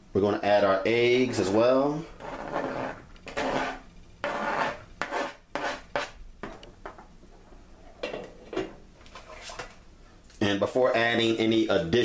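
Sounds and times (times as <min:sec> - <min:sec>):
utensil scraping plastic bowl: 0:02.1 - 0:06.2.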